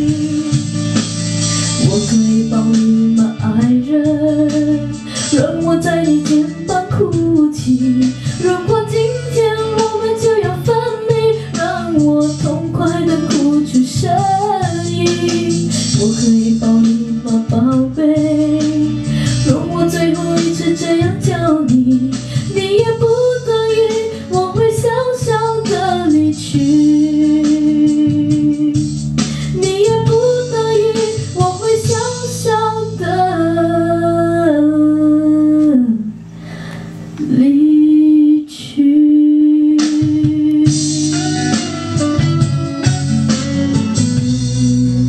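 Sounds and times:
woman singing into microphone: 0:00.0 - 0:01.0, 0:01.6 - 0:41.8
guitar backing track: 0:00.0 - 0:37.4, 0:39.7 - 0:45.0.

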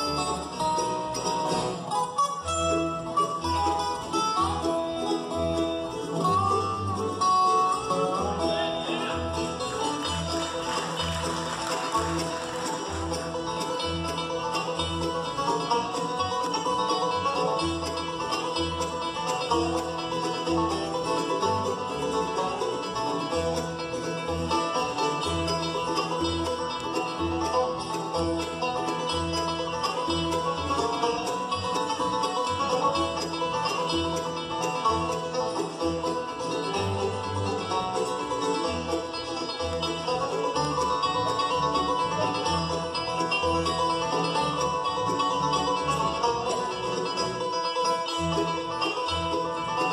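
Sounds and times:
bluegrass band playing: 0:00.0 - 0:49.9
upright bass plucking: 0:00.0 - 0:49.9.

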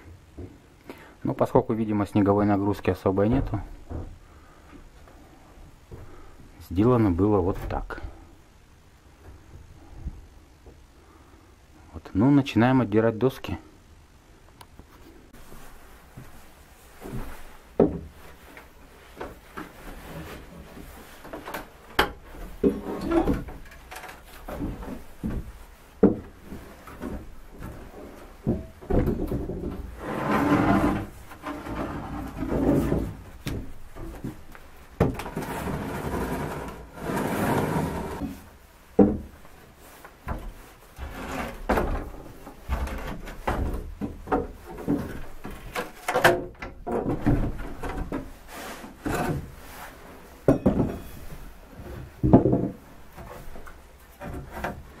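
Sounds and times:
wooden boards creaking and scraping: 0:02.4 - 0:05.3, 0:17.0 - 0:55.0.

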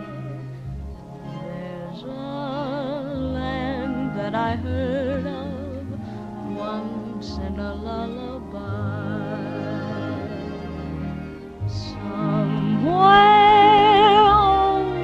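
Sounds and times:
low bass notes: 0:00.0 - 0:15.0
high voice singing with vibrato: 0:01.4 - 0:10.6, 0:11.7 - 0:15.0.

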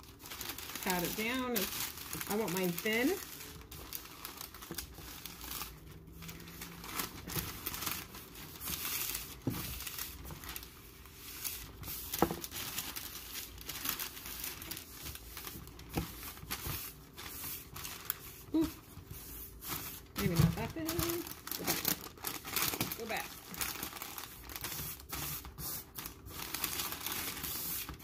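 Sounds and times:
parchment paper crinkling: 0:00.0 - 0:28.0
hands patting dough: 0:14.3 - 0:21.2.

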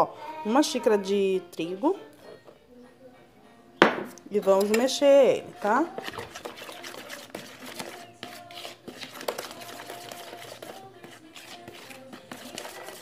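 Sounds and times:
faint background music: 0:00.0 - 0:13.0
spoon scraping plastic bowl: 0:04.1 - 0:13.0.

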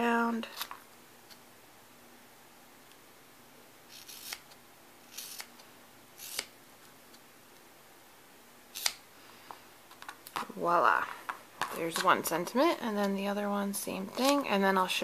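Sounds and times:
scissors snipping rubber: 0:03.9 - 0:04.5.

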